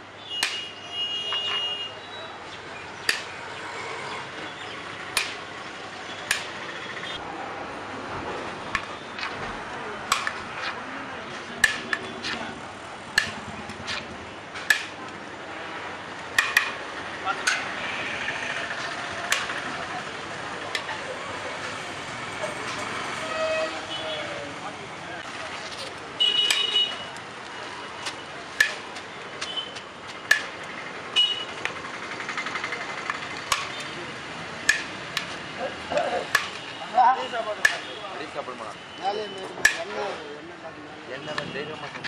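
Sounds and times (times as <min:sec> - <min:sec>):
vehicle horn beeps: 0:00.2 - 0:02.3, 0:17.8 - 0:18.6, 0:23.2 - 0:24.4, 0:26.2 - 0:27.1, 0:29.4 - 0:29.8, 0:31.2 - 0:31.5.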